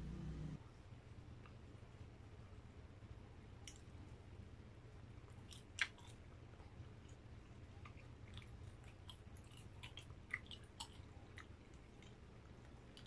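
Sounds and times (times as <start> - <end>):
low steady hum: 0.0 - 13.0
person chewing food: 5.2 - 13.0.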